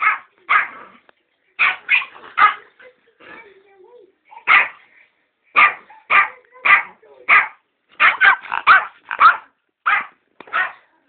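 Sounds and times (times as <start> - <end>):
small dog barking: 0.0 - 0.8, 1.6 - 2.6, 4.4 - 4.8, 5.6 - 10.8.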